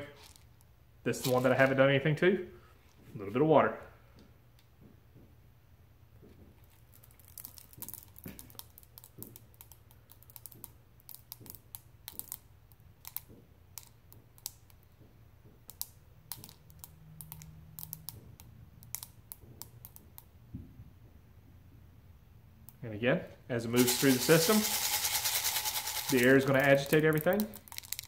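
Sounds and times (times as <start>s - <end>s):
beads crackling and popping: 6.6s - 20.3s, 23.8s - 28.0s.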